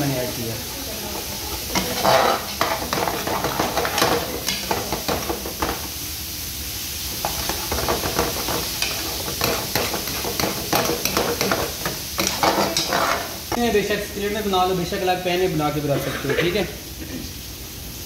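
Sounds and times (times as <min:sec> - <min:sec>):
sauce bubbling and sizzling: 0:00.0 - 0:18.0
metal ladle scraping pan: 0:01.4 - 0:05.2, 0:07.2 - 0:13.4.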